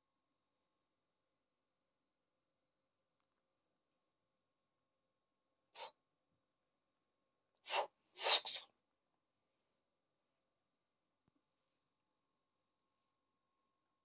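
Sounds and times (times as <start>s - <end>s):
cat sneezing: 5.8s - 6.0s, 7.6s - 8.7s.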